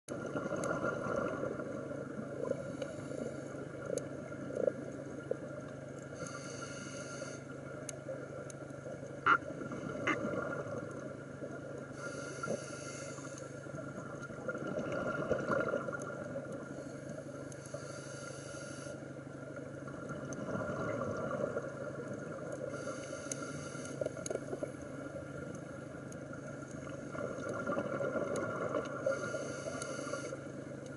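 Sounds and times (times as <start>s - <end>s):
steady hum: 0.1s - 30.9s
diver breathing through regulator: 6.2s - 7.5s, 11.9s - 13.6s, 16.8s - 19.0s, 22.7s - 24.2s, 29.0s - 30.5s.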